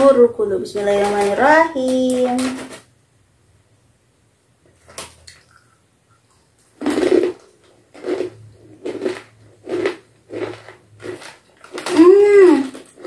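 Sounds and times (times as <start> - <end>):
crunchy snack chewing: 6.8 - 13.0.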